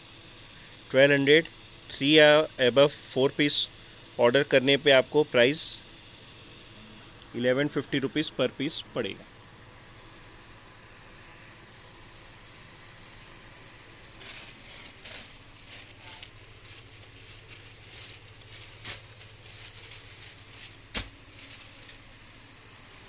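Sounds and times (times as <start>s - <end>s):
steady low hum: 0.0s - 23.0s
cloth rustling: 14.2s - 22.1s.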